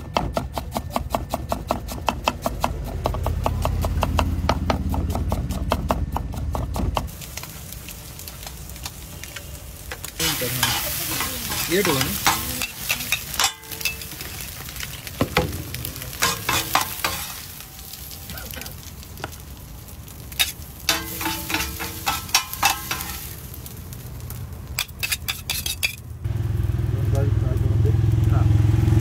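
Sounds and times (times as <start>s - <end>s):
food sizzling: 7.0s - 29.0s
metal spatulas scraping griddle: 10.2s - 14.5s, 16.2s - 17.4s, 20.4s - 23.3s, 24.8s - 26.0s.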